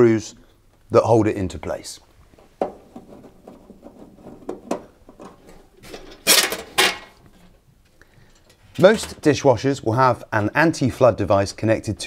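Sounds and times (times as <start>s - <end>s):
metal plate scraping: 2.7s - 7.6s.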